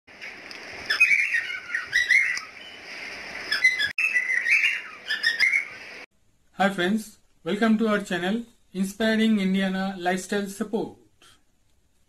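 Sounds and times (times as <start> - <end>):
birds chirping: 0.3 - 6.1.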